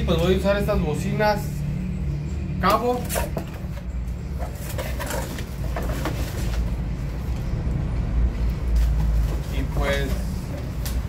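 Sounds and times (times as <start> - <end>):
cardboard flaps rustling: 4.4 - 6.9.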